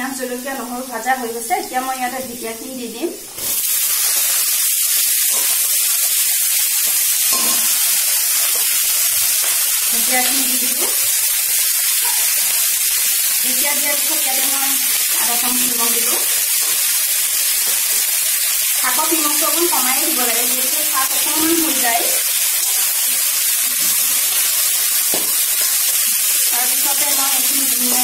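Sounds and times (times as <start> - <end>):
hot oil sizzling loudly: 0.0 - 28.0.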